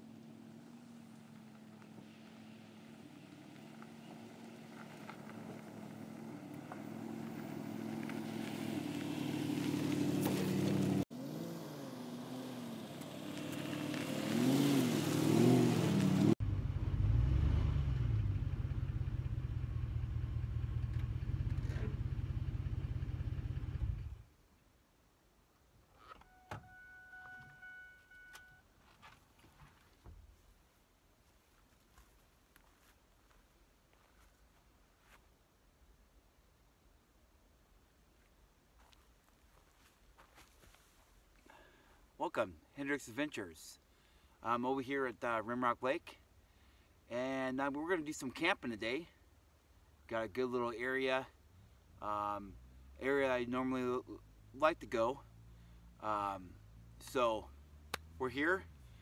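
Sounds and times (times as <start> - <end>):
vehicle engine revving: 2.7 - 24.2, 56.5 - 59.0
brief steady tone: 26.1 - 28.7.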